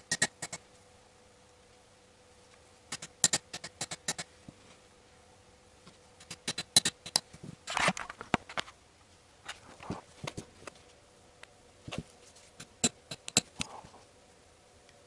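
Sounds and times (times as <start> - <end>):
scuffling handling noise: 11.8 - 12.7.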